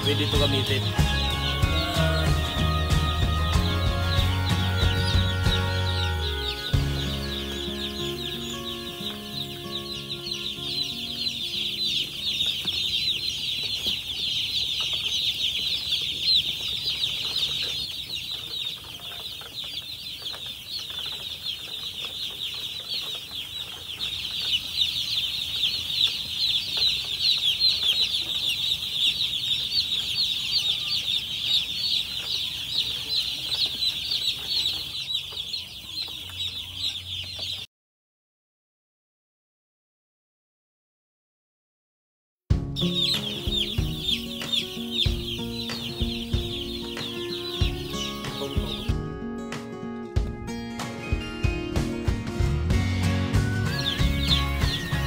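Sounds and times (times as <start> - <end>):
faint background music: 0.0 - 17.8, 42.5 - 55.0
chicks peeping: 0.0 - 37.7, 42.6 - 55.0.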